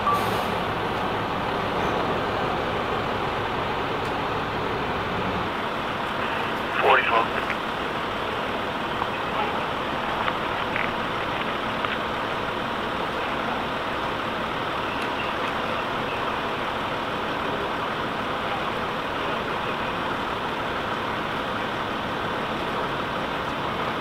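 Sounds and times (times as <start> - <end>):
vehicles idling: 0.0 - 24.0.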